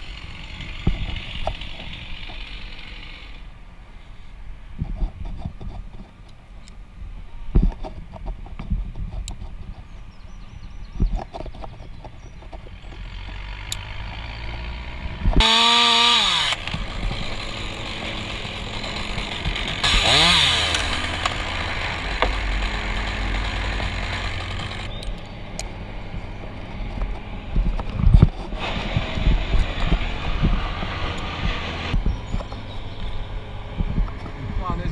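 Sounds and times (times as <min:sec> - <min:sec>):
chainsaw revving: 0:00.0 - 0:03.4, 0:13.0 - 0:25.0, 0:28.5 - 0:32.0.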